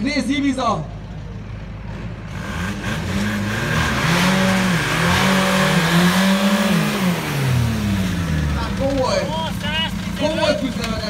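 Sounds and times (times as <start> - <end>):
diesel car engines revving: 0.0 - 11.0.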